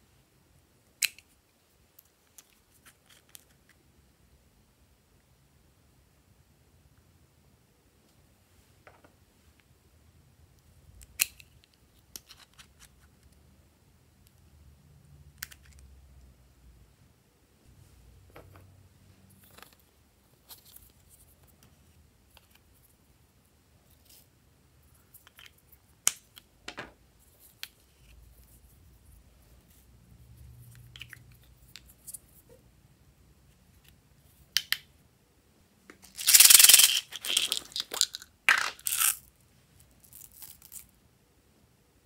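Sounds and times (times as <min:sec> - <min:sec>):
plastic toys clicking: 0:36.1 - 0:39.3
small beads rattling in a hand: 0:36.1 - 0:39.3.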